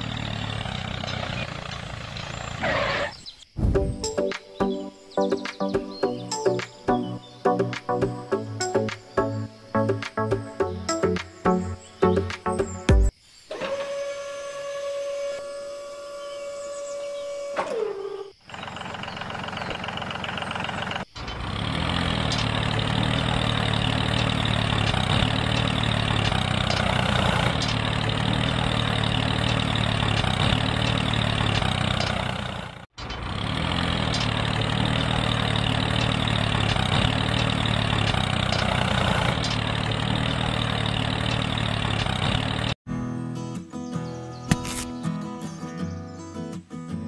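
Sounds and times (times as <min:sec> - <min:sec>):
tractor engine idling: 0:00.0 - 0:03.0, 0:18.4 - 0:42.8.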